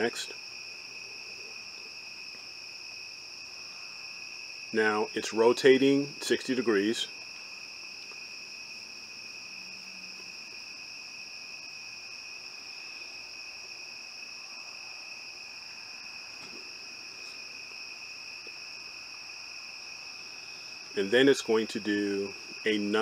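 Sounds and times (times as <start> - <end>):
crickets chirring: 0.0 - 23.0.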